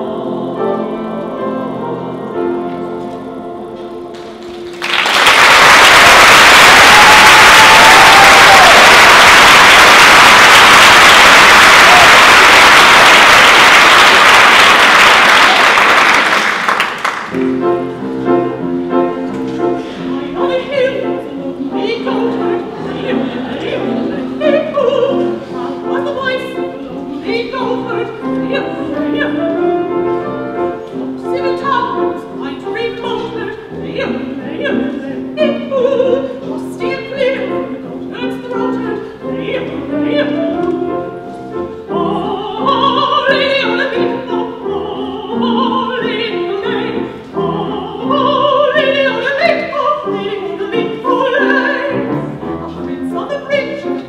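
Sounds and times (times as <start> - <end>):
woman singing: 20.0 - 54.0.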